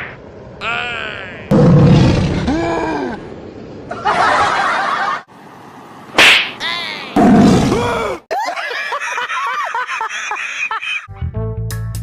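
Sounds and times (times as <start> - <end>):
sharp smack: 6.2 - 6.6.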